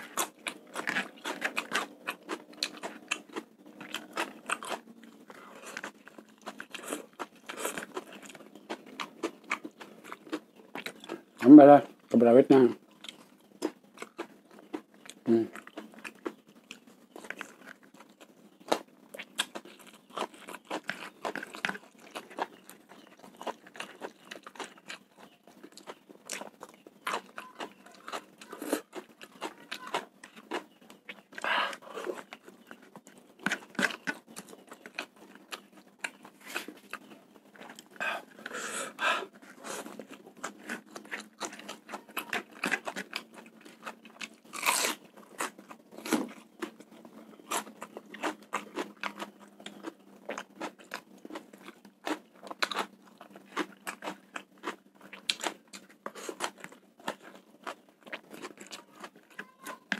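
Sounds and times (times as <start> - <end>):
wet chewing: 0.0 - 12.1, 12.9 - 59.9
crisp crunches: 39.4 - 46.4.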